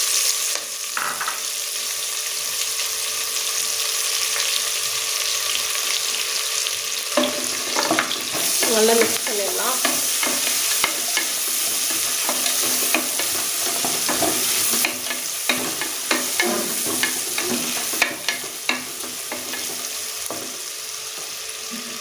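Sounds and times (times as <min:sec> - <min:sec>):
onions sizzling in oil: 0:00.0 - 0:22.0
spoon scraping onions: 0:07.1 - 0:20.7
wooden spoon knocking pot: 0:07.2 - 0:20.6.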